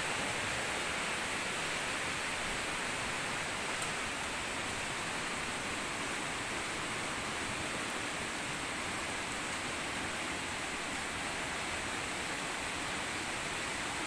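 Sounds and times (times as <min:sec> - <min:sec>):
rushing water hiss: 0:00.0 - 0:14.0
faint tick: 0:03.8 - 0:04.0.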